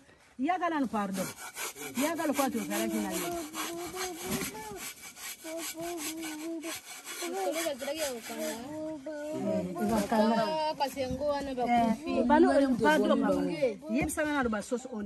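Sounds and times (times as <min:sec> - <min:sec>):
scraping on cardboard box: 0:01.1 - 0:08.8.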